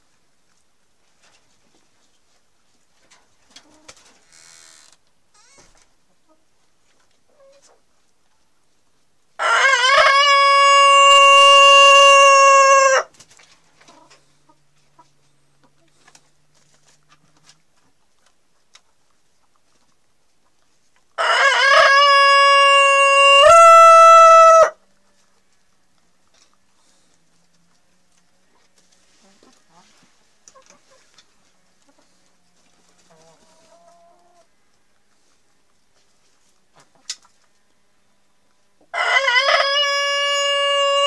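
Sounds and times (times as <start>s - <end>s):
rooster crowing: 9.4s - 13.1s, 21.2s - 24.8s, 38.9s - 41.0s.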